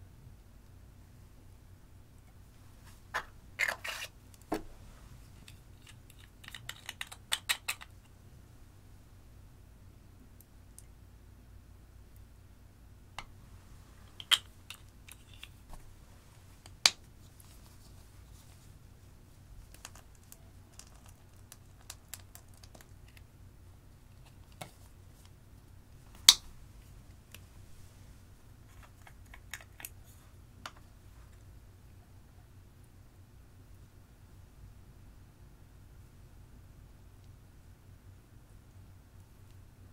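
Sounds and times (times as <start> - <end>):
plastic makeup pots clicking: 5.4 - 8.0, 14.1 - 15.6.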